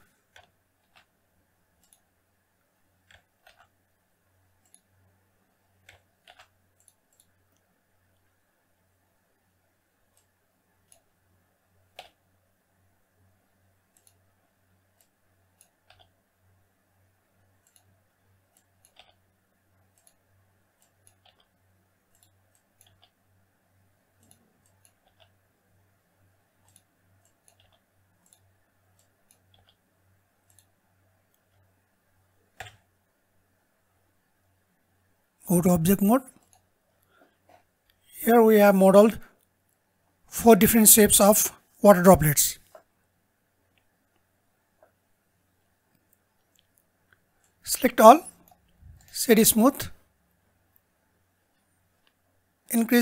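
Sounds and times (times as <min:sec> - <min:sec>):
mouse and keyboard clicks: 0:00.2 - 0:01.2, 0:01.8 - 0:02.1, 0:03.0 - 0:03.8, 0:05.8 - 0:07.6, 0:11.9 - 0:12.2, 0:14.9 - 0:16.2, 0:18.5 - 0:19.2, 0:19.9 - 0:20.2, 0:20.8 - 0:23.2, 0:24.2 - 0:25.4, 0:26.6 - 0:29.8, 0:32.5 - 0:32.9.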